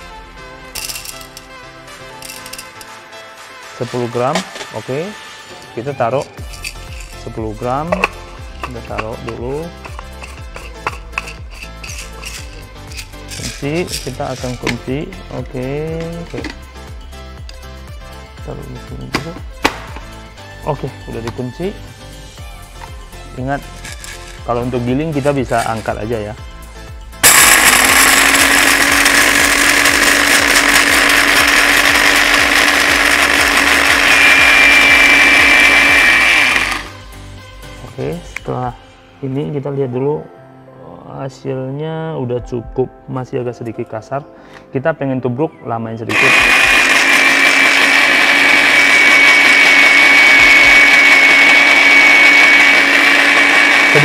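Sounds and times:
blender grinding coffee beans: 2.2 - 2.9, 6.2 - 14.9, 23.6 - 25.8, 27.2 - 37.0, 46.1 - 54.0.

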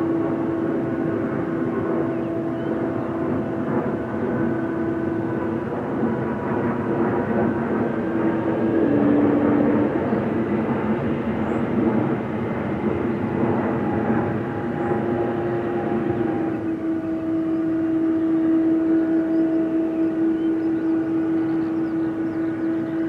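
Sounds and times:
engine whining tones: 0.0 - 23.0
jet engines taxiing: 0.0 - 23.0.

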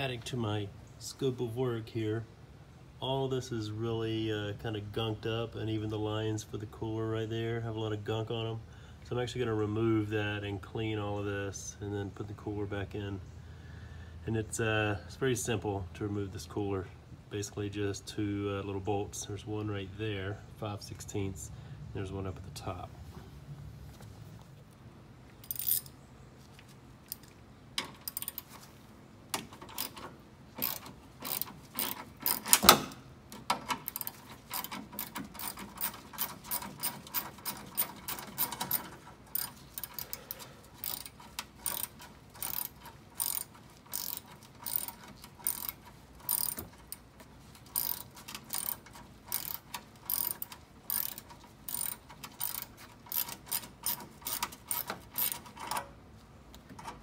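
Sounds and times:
ratchet wrench clicking: 25.4 - 25.9, 27.9 - 28.5, 29.6 - 32.7, 33.8 - 47.0, 47.6 - 55.8.

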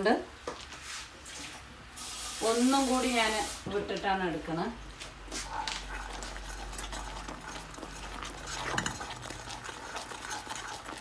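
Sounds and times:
wooden spoon scraping a pan: 5.4 - 11.0
syrup bubbling: 5.7 - 11.0.

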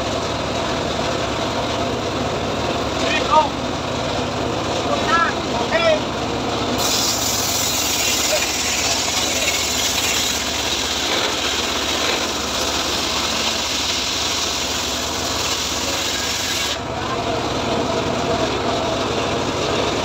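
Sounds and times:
engine running: 0.0 - 20.0
saw blade cutting log: 6.8 - 16.9.

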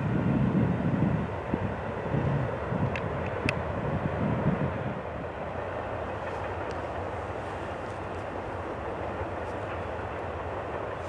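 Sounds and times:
train wheels rumbling on rail: 0.0 - 11.0
faint clicks: 6.2 - 8.4.

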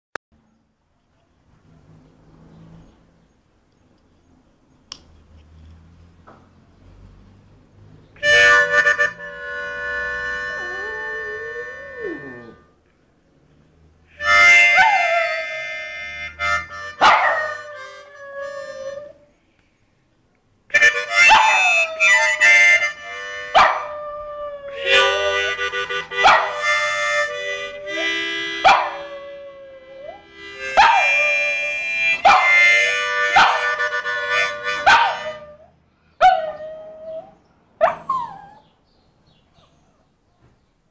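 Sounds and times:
harmonica blues phrases: 8.2 - 12.6, 14.1 - 19.1, 20.7 - 24.0, 24.7 - 35.6
dog howling: 10.4 - 12.6, 14.7 - 15.4, 17.0 - 19.3, 21.2 - 22.6, 23.5 - 31.5.

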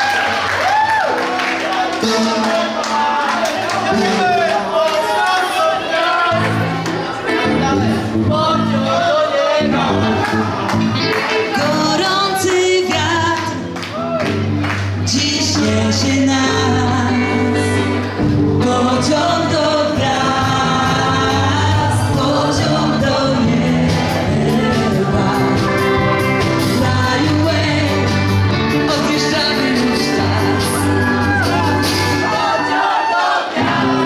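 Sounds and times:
upbeat dance song with singing: 11.4 - 13.7, 15.0 - 34.0.

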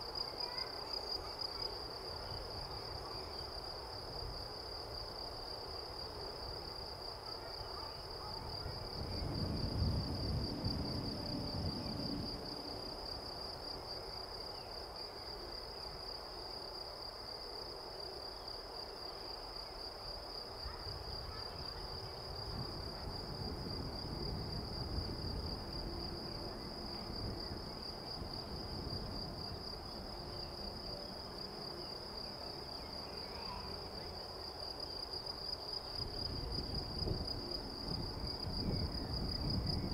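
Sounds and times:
crickets chirring: 0.0 - 39.9.

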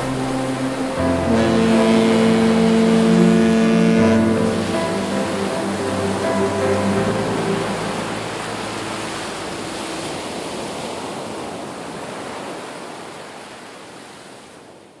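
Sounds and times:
background music held notes: 0.0 - 10.8
sea waves breaking on shore: 0.0 - 15.0.

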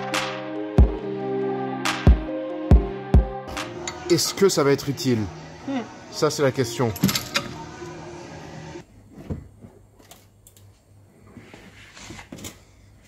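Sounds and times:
background music: 0.0 - 8.8.

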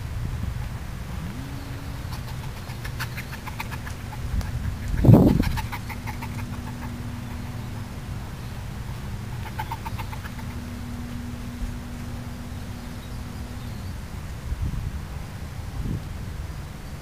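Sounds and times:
quick high ticking or chirping: 1.7 - 14.0.

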